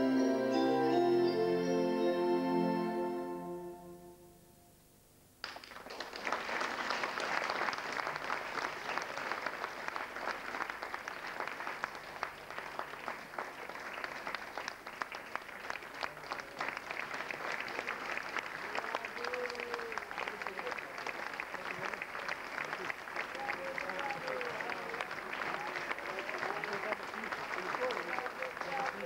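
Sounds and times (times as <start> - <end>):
keyboard chord: 0.0 - 4.8
audience applause: 5.4 - 29.0.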